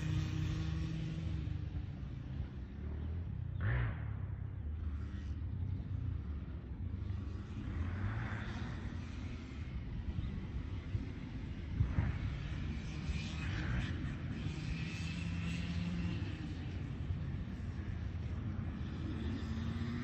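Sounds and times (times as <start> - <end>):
dirt bike engine revving: 18.6 - 20.0.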